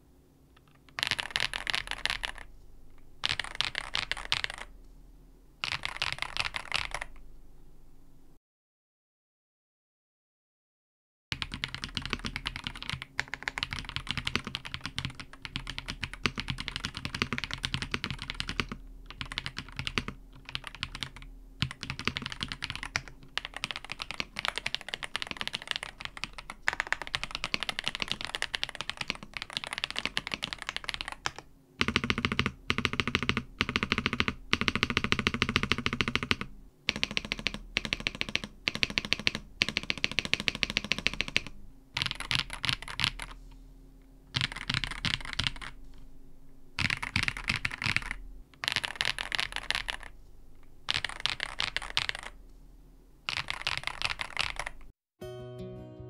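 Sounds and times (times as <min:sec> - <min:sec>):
fast mechanical keyboard typing: 0:00.9 - 0:02.5, 0:03.2 - 0:04.7, 0:05.6 - 0:07.2, 0:11.4 - 0:43.4, 0:44.3 - 0:45.8, 0:46.8 - 0:50.2, 0:50.9 - 0:52.4, 0:53.3 - 0:54.9.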